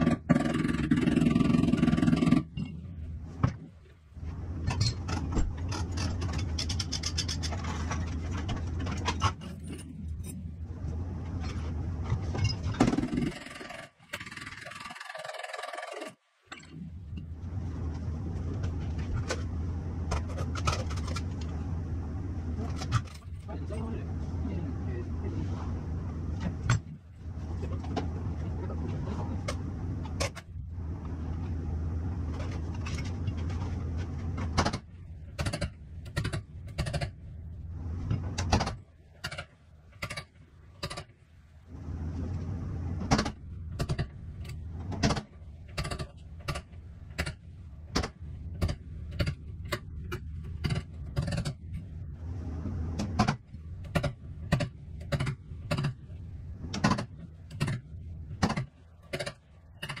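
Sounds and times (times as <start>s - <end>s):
low steady hum: 0.0s - 15.1s, 15.7s - 60.0s
sharp metal clicks and knocks: 56.7s - 60.0s.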